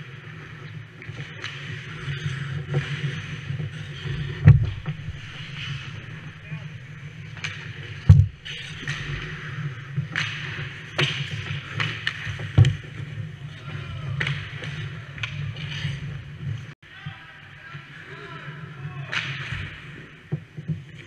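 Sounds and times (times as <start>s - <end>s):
skate blades scraping ice: 0.0s - 13.3s
sticks and pucks knocking: 1.1s - 13.2s.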